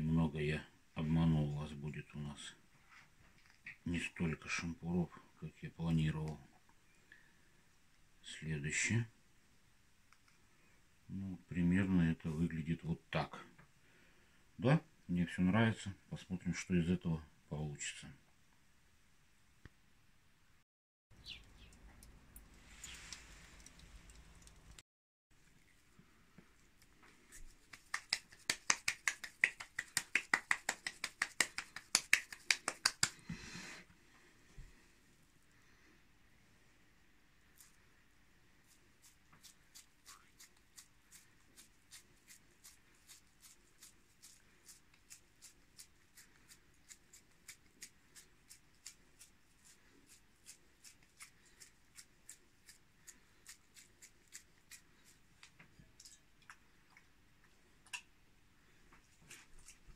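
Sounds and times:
meat slapped between palms: 27.6s - 33.3s
soft wet smacks of meat: 50.1s - 58.2s.

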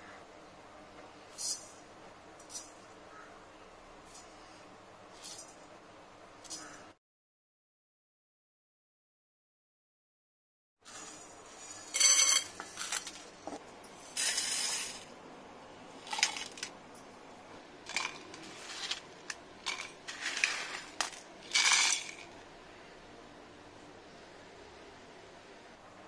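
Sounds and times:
dry spices rattling against steel: 16.0s - 16.7s, 17.8s - 22.4s.

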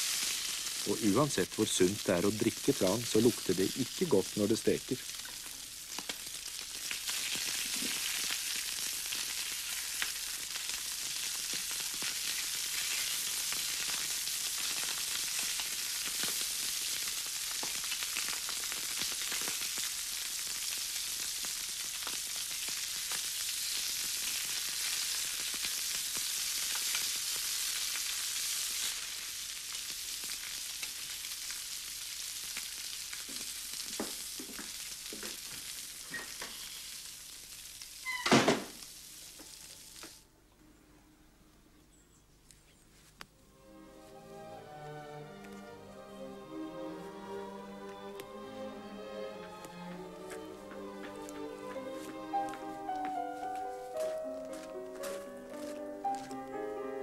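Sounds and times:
fish sizzling in a pan: 0.0s - 40.2s.

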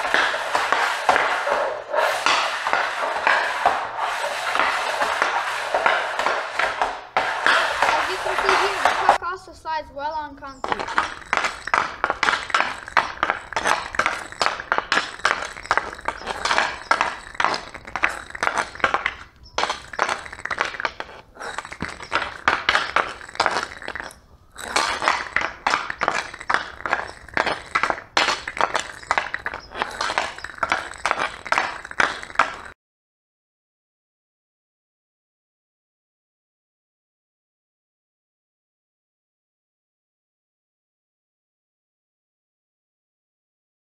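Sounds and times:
hockey stick tapping puck on concrete: 0.0s - 9.3s, 10.4s - 32.8s.

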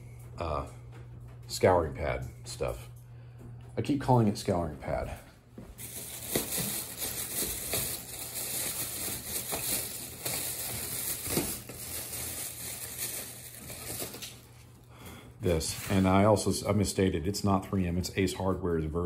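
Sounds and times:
plastic bag crinkling: 5.7s - 14.9s.

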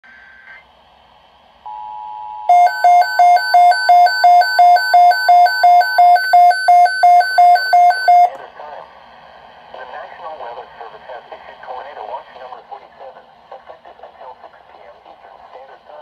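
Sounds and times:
alert radio beeping low and high: 2.5s - 8.4s.

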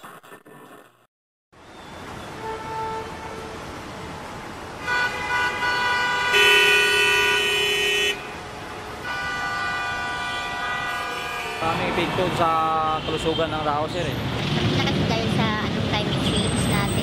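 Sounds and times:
street traffic: 1.5s - 17.0s
vehicle horns honking: 2.3s - 3.7s, 4.8s - 13.9s
buzzing horn: 4.8s - 8.4s, 9.0s - 12.0s.

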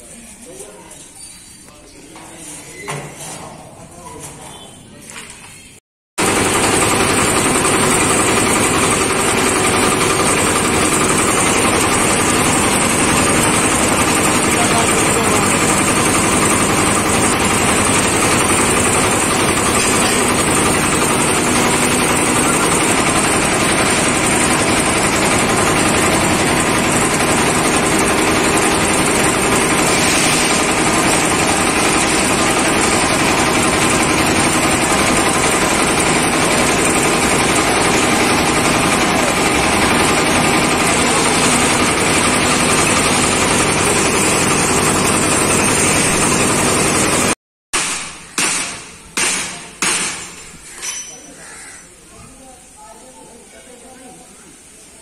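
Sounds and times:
mixer engine humming: 6.2s - 47.4s.

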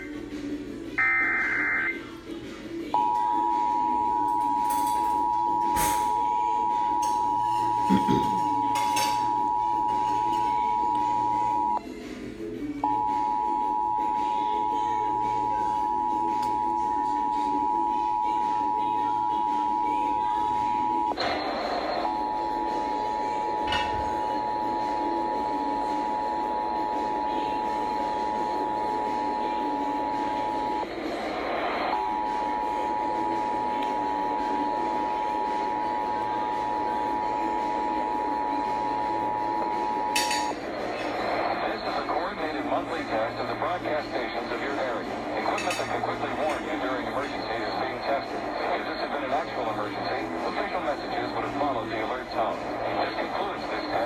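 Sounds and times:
two-tone alert signal: 1.0s - 2.1s, 3.0s - 11.8s, 12.8s - 30.9s.

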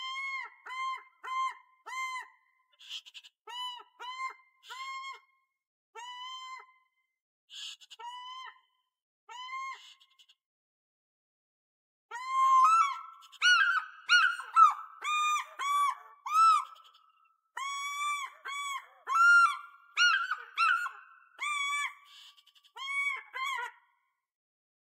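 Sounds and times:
fish eagle calling: 12.4s - 22.0s.

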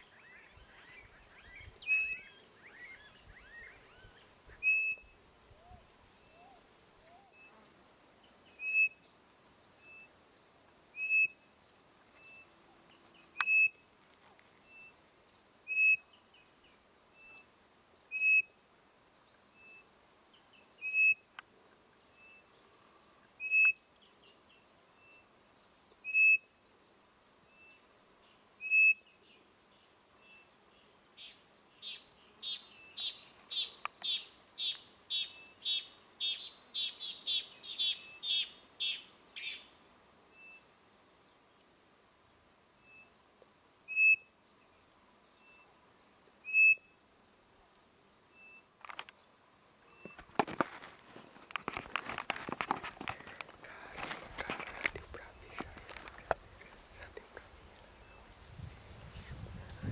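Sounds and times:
bird-call whistle notes: 1.4s - 5.1s, 43.9s - 44.3s, 46.4s - 46.9s
quail chirping: 46.5s - 46.8s.

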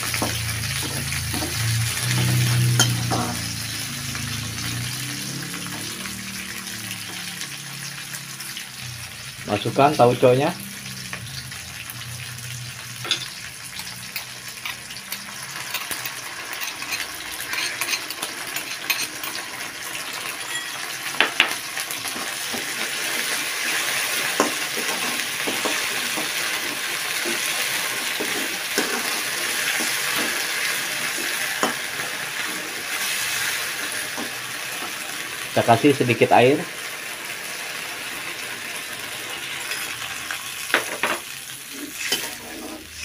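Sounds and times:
food sizzling in hot oil: 0.0s - 43.0s
metal spatula scraping a wok: 15.6s - 19.4s, 22.1s - 34.4s, 41.6s - 43.0s.

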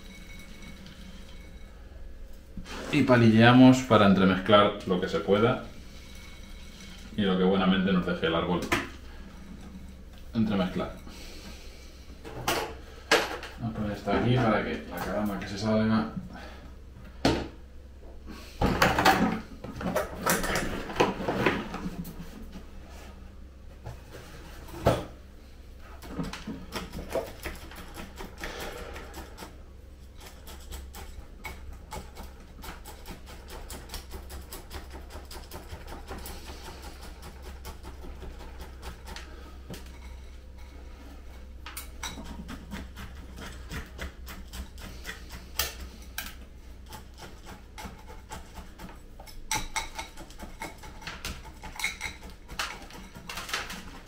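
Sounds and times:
grit scraping and rattling: 0.0s - 12.7s, 25.8s - 54.0s.

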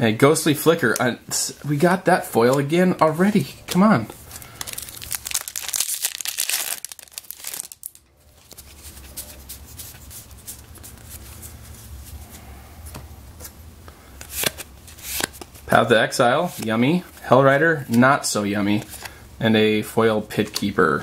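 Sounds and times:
cards rustling and clicking: 2.4s - 11.9s, 14.2s - 15.6s
foil wrapper tearing and crinkling: 4.4s - 8.0s.

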